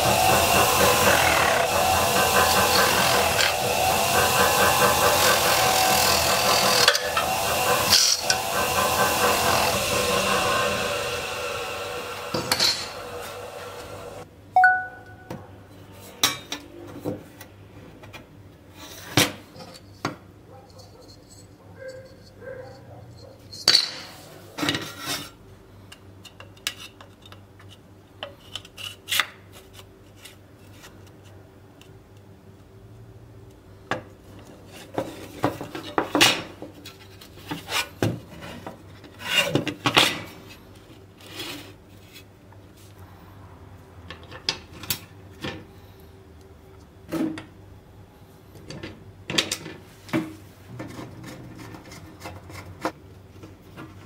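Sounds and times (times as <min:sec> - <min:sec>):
screwdriver turning screws: 0:00.0 - 0:10.6.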